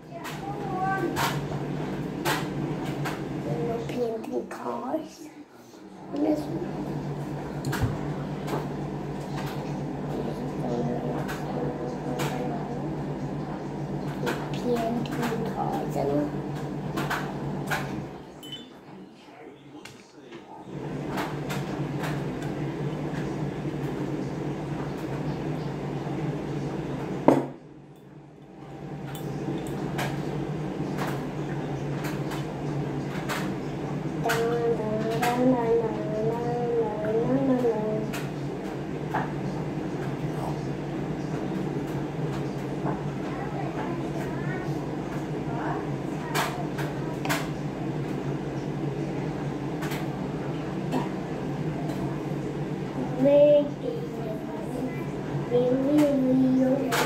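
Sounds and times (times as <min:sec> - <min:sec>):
low background hum: 0:00.0 - 0:57.0
loud knock: 0:27.3 - 0:27.6.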